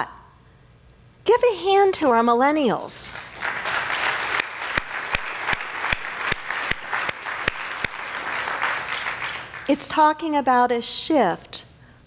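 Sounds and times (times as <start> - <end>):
nearby person clapping: 3.1 - 9.7
congregation applauding: 3.1 - 9.8.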